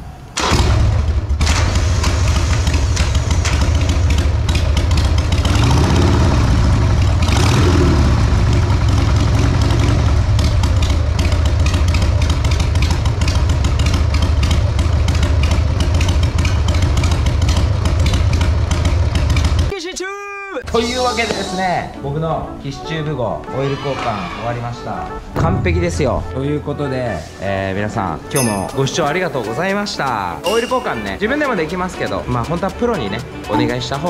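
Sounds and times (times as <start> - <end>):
motorcycle engine idling: 0.5 - 19.7.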